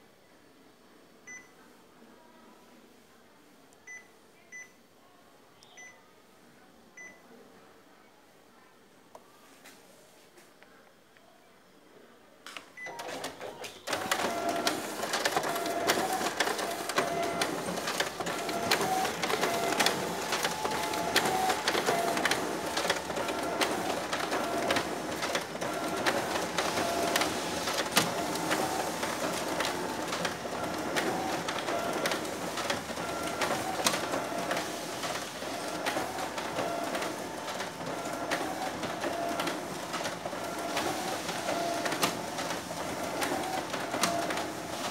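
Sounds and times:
copier whirring and clicking: 12.8 - 44.9.

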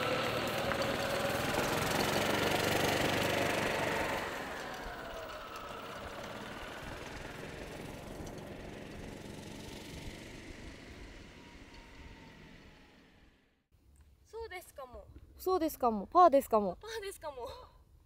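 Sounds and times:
golf cart motor whine: 0.0 - 13.6.

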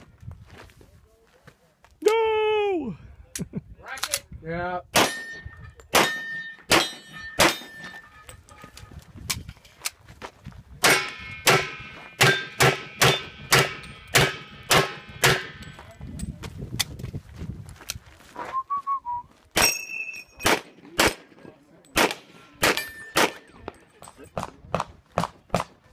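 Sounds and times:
pistol shots: 5.0 - 7.8, 10.8 - 15.6, 20.4 - 21.3, 22.0 - 23.5
steel plate clanging: 5.0 - 8.9, 10.9 - 15.7.

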